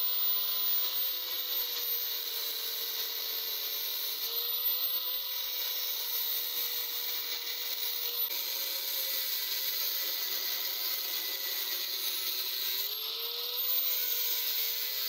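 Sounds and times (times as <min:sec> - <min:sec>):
angle grinder cutting steel: 0:00.0 - 0:15.0.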